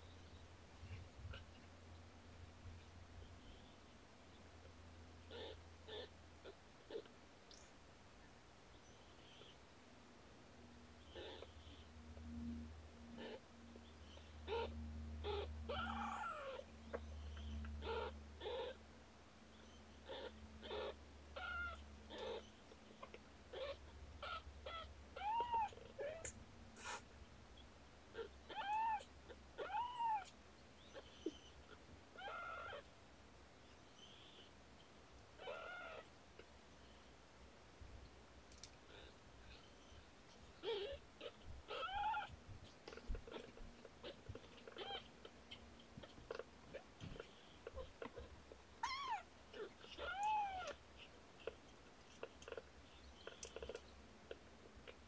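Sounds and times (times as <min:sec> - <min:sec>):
kittens mewing: 0:05.3 - 0:07.1, 0:11.1 - 0:11.8, 0:14.2 - 0:18.8, 0:20.0 - 0:27.1, 0:28.1 - 0:32.8, 0:35.4 - 0:36.5, 0:40.6 - 0:55.0
soft clicks and rustles: 0:37.8 - 0:38.9.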